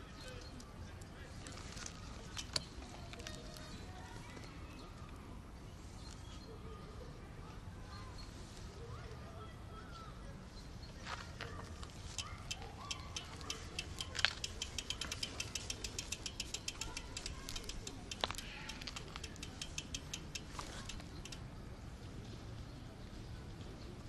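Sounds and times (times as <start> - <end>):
bicycle freewheel ticking: 12.0 - 21.5.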